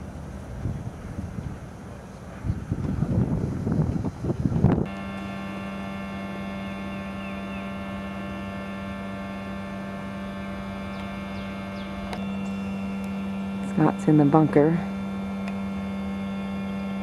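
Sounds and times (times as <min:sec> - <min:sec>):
wind noise on microphone: 0:00.0 - 0:07.8
electrical hum: 0:00.0 - 0:17.0
faint chirps: 0:06.8 - 0:07.9.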